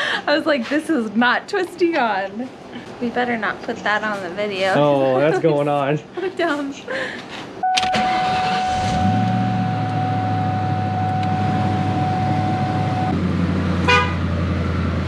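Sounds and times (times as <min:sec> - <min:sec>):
car horn blast: 0:07.6 - 0:13.1, 0:13.8 - 0:14.3
car engine starting and idling: 0:07.6 - 0:15.0
ignition key click: 0:07.7 - 0:11.5
thin whine: 0:07.7 - 0:13.2.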